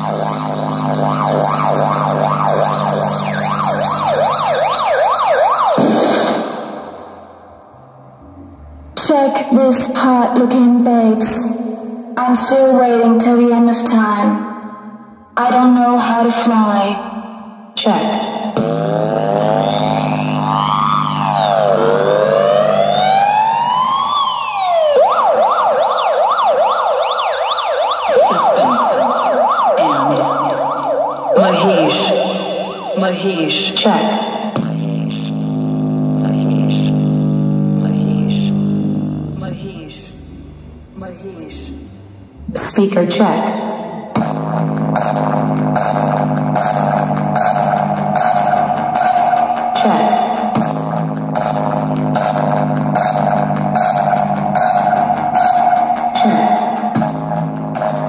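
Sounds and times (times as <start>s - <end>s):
siren-like sweeping tone: 0.0s - 9.1s, 19.1s - 34.6s
low drone: 5.8s - 9.7s, 37.8s - 43.0s.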